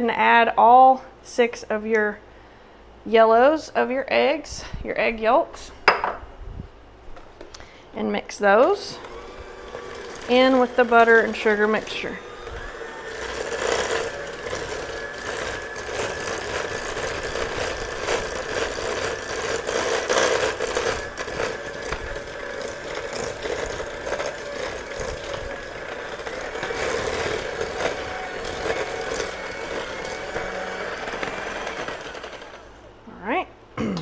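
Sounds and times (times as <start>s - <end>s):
electric hand mixer whine: 8.8s - 32.8s.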